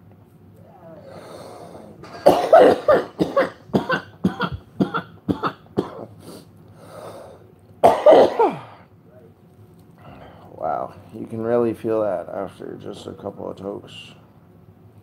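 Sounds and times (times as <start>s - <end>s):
man exhaling: 0.8s - 2.0s
man coughing: 2.0s - 6.1s, 7.8s - 8.9s.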